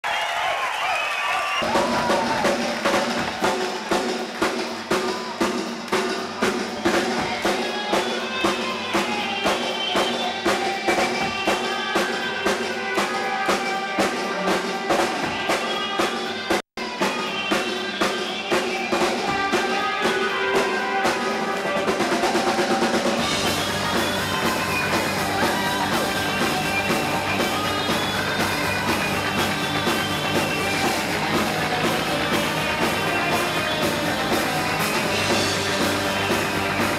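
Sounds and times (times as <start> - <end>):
drum kit beat: 1.6 - 36.9
electric guitar: 1.6 - 36.9
low bass: 23.2 - 36.9.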